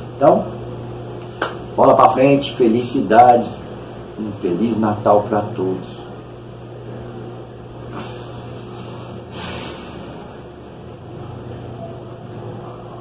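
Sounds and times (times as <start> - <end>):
steady low hum: 0.0 - 13.0
man sniffing tearfully: 7.9 - 10.4.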